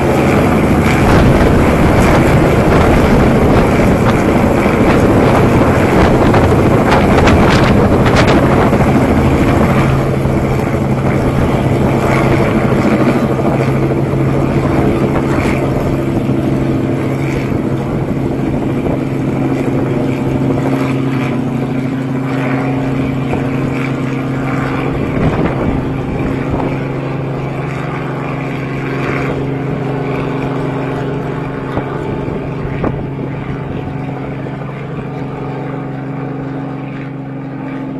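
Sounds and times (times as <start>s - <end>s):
helicopter engine and rotor drone: 0.0s - 37.9s.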